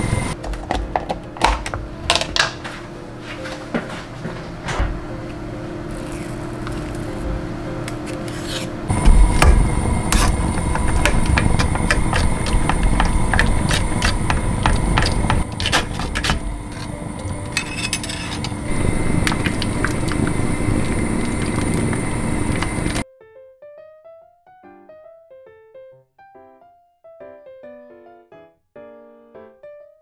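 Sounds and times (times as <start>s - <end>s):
steady hum: 0.0s - 0.4s, 1.2s - 23.0s
spoon scraping a plastic tub: 8.0s - 20.4s
metal spoon scraping a mesh strainer: 15.0s - 18.7s.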